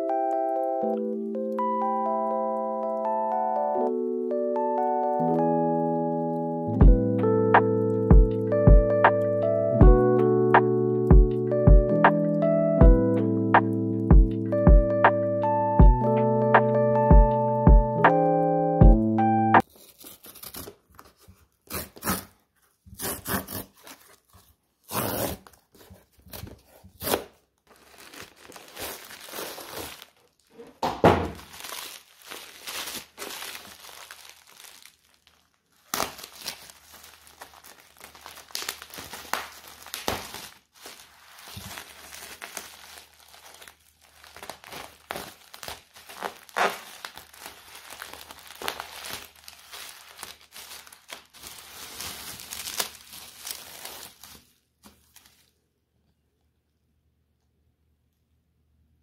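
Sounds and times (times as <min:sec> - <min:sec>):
material crinkling and rustling: 0:19.6 - 0:55.6
tearing and thunks: 0:30.6 - 0:31.6.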